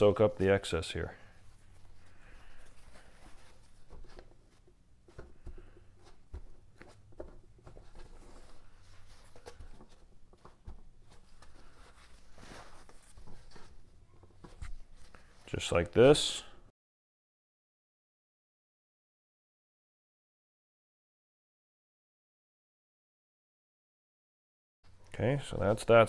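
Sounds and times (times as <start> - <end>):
paper towel rustling and dabbing: 10.6 - 13.9.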